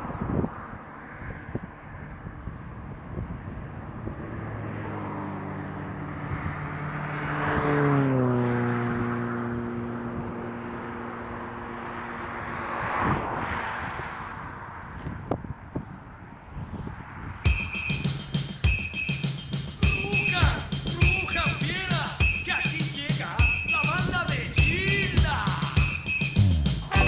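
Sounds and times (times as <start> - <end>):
vehicle engine hum passing: 0.0 - 15.3
tyre noise rushing: 17.5 - 27.0.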